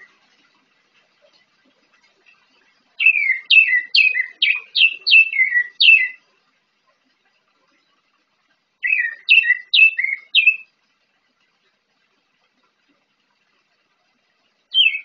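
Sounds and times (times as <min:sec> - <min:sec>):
thrush singing whistled notes: 0:03.0 - 0:06.2, 0:08.8 - 0:10.7, 0:14.7 - 0:15.0.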